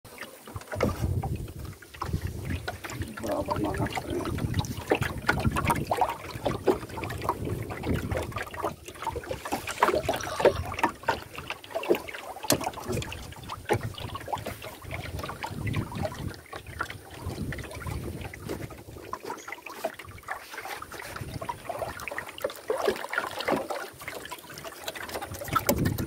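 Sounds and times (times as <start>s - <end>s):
water lapping against canoe hull: 0.1s - 26.0s
wind on microphone: 0.7s - 11.4s, 12.9s - 19.2s, 20.9s - 22.1s, 25.3s - 26.0s.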